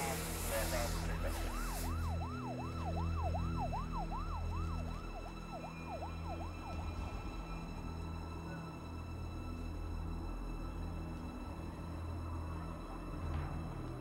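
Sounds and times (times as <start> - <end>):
emergency vehicle siren yelping: 0.0 - 8.7.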